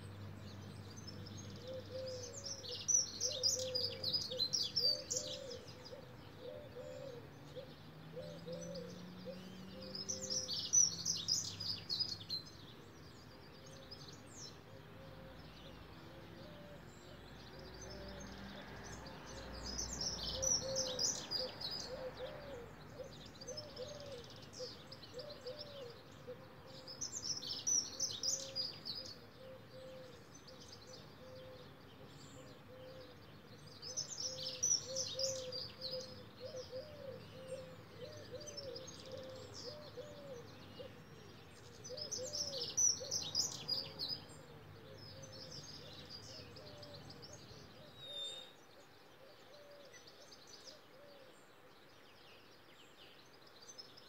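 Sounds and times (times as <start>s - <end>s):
songbirds singing: 0.0s - 54.0s
doves cooing: 1.6s - 10.6s, 20.3s - 26.9s, 29.2s - 30.2s, 34.0s - 48.4s.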